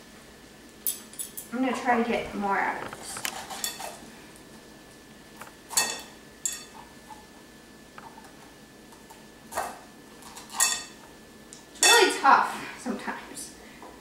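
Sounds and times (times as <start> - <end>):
metal spoon scraping squash: 3.0 - 4.0, 9.5 - 11.0
spoon clinking on glass: 5.8 - 6.7.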